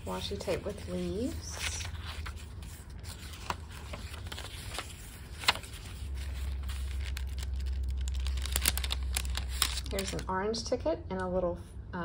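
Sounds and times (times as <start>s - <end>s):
paper pages rustling: 0.0s - 10.3s
steady low hum: 0.0s - 12.0s.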